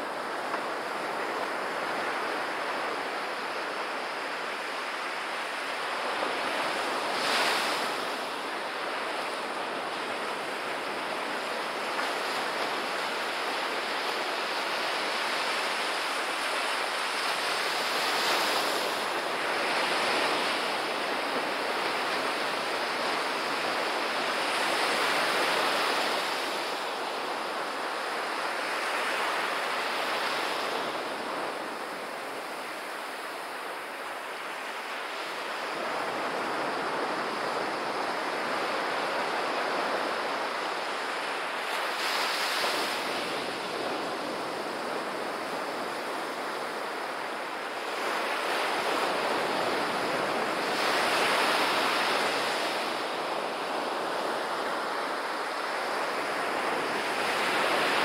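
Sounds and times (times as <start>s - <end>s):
waves breaking on beach: 0.0s - 58.0s.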